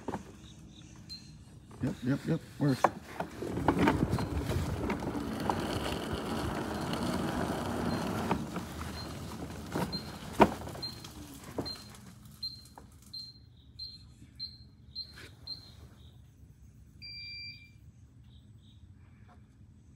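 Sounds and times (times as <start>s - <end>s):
electric kart motor and tyres: 0.0s - 13.1s.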